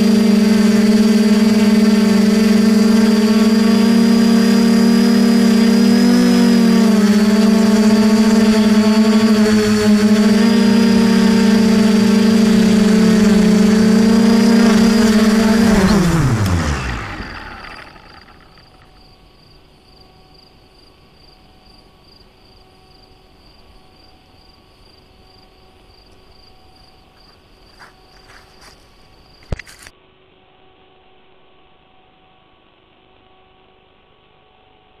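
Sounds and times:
steady electrical hum: 0.0s - 35.0s
insect chirping trill: 16.9s - 29.6s.

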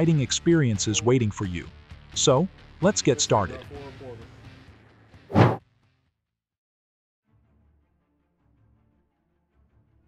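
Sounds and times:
faint background music: 0.0s - 5.3s.

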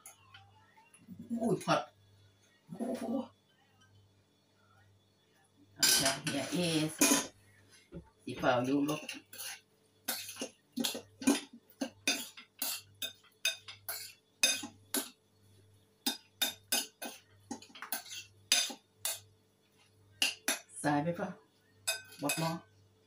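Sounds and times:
spoon clinking and scraping bowl: 5.8s - 7.4s, 8.7s - 15.2s, 16.0s - 19.3s, 20.2s - 20.7s, 21.8s - 22.7s.

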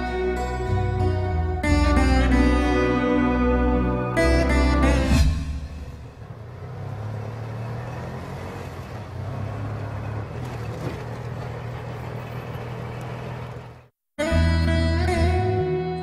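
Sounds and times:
auto-rickshaw engine running: 5.6s - 14.0s.

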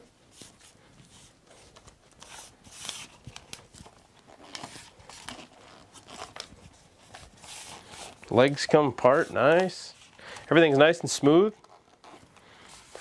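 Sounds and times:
tripod legs rubbing and clicking: 1.4s - 10.2s, 11.4s - 13.0s.

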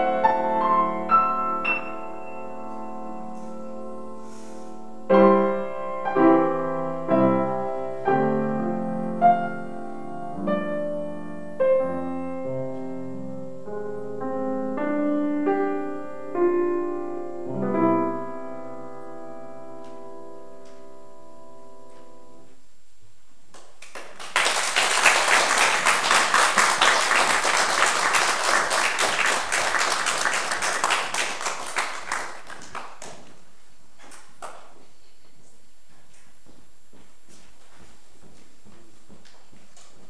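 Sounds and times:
grand piano playing: 0.0s - 22.5s
audience applauding: 23.5s - 33.4s.

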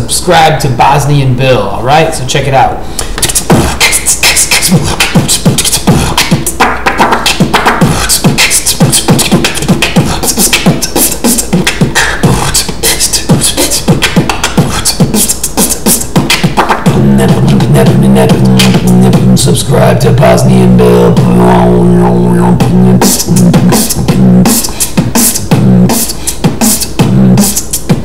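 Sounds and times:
person beatboxing: 2.8s - 28.0s
low bass tone: 16.9s - 24.5s.

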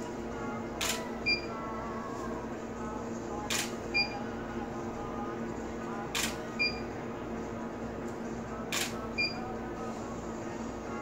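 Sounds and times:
camera shutter: 0.8s - 1.0s, 3.5s - 3.8s, 6.2s - 6.4s, 8.7s - 9.0s.

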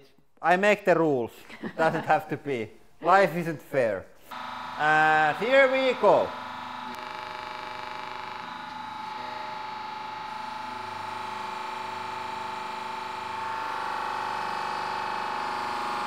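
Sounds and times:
hydraulic press pump whine: 4.2s - 16.0s.

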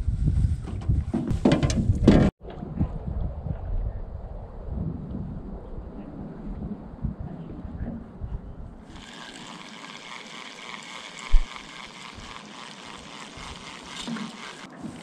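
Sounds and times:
fishing reel whirring: 8.9s - 15.0s.

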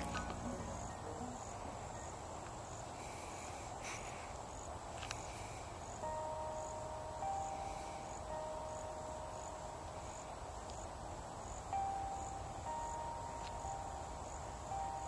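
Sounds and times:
steady held tones: 0.0s - 2.3s
insect chirping: 0.0s - 15.0s.

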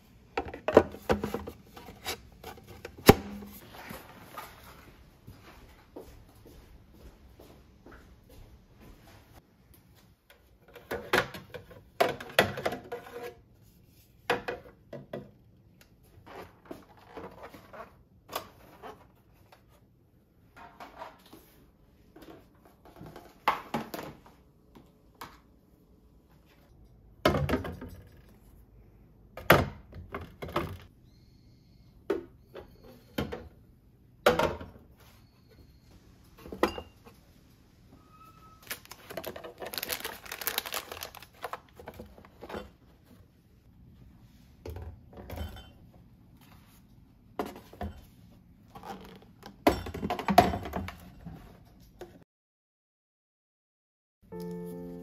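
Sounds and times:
plastic rattling: 38.6s - 42.2s.

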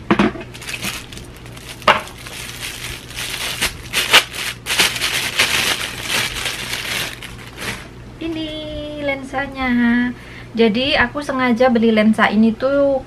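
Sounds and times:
plastic packaging crinkling: 0.4s - 8.0s.

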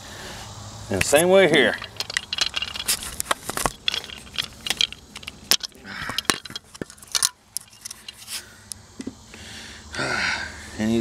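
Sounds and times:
plastic and rubber parts clicking: 1.7s - 8.4s.

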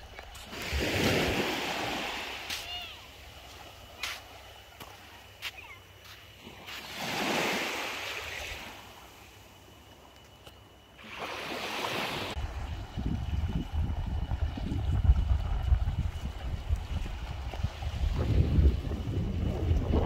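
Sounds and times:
small waves washing ashore: 0.0s - 10.2s, 10.9s - 19.9s.

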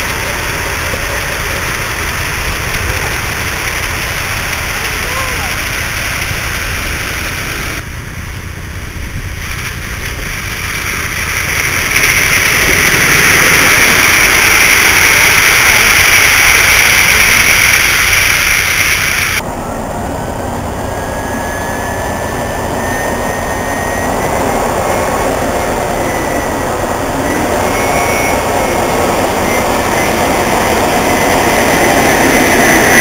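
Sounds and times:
steam hissing: 0.0s - 7.8s, 9.2s - 33.0s
rough running noise: 9.0s - 19.4s
faint rising tone: 19.4s - 33.0s.

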